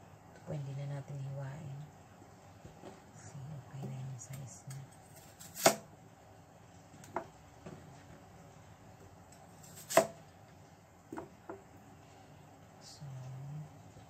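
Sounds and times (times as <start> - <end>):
knife cutting potatoes: 4.7 - 5.9, 9.3 - 10.2.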